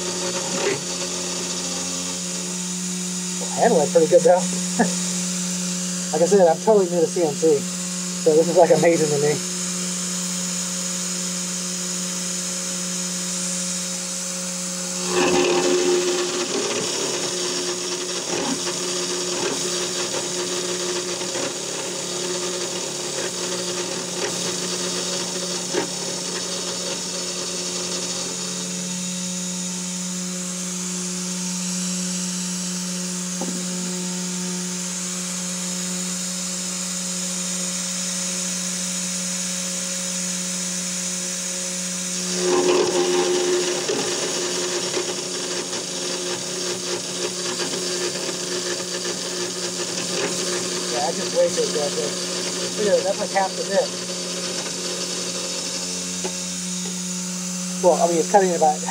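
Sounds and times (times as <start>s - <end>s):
end mill grinding metal: 0.0s - 7.6s, 14.5s - 29.0s, 42.1s - 57.2s
spindle whining: 14.8s - 24.7s, 42.2s - 57.0s.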